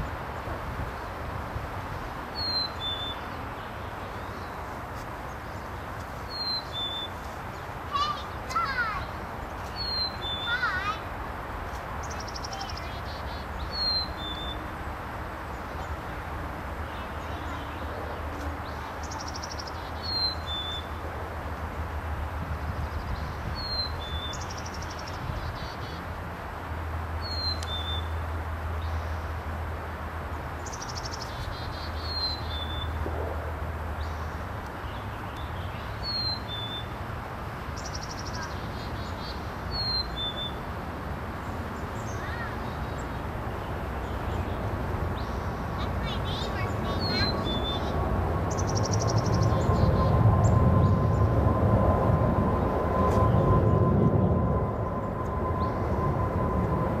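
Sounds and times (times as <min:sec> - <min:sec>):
hummingbird singing: 0:02.4 - 0:04.6, 0:05.5 - 0:10.8, 0:12.0 - 0:14.7, 0:18.6 - 0:21.0, 0:30.6 - 0:33.0, 0:37.8 - 0:40.6, 0:44.0 - 0:50.9
steady low rumble: 0:40.8 - 0:57.0.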